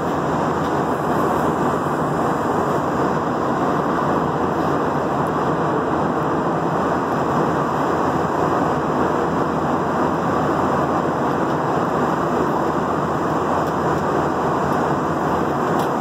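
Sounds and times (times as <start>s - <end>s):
jet cabin engine and airflow roar: 0.0s - 16.0s.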